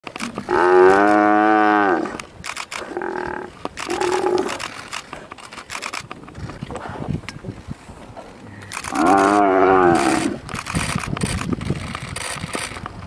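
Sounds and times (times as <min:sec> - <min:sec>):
buffalo bellowing in distress: 0:00.4 - 0:02.1, 0:08.9 - 0:10.4.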